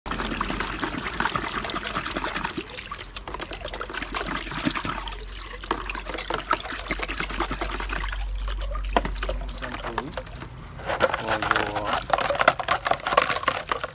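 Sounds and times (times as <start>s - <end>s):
water trickling and splashing: 0.1s - 13.9s
utensils knocking and clicking: 9.0s - 13.9s.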